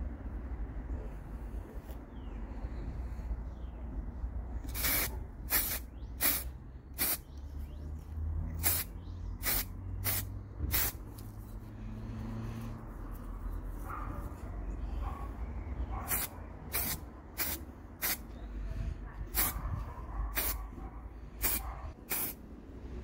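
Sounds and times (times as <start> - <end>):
aerosol spray can hissing: 4.7 - 7.3, 8.6 - 11.3, 16.1 - 18.2, 21.4 - 22.4.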